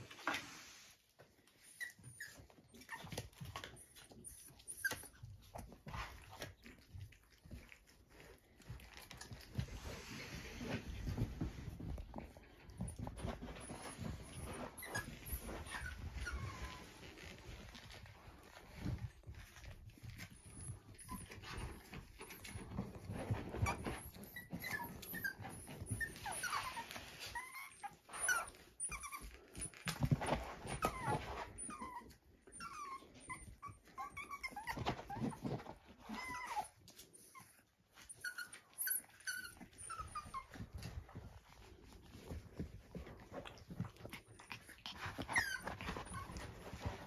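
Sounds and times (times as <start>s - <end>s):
puppies whimpering and squeaking: 0.0s - 47.0s.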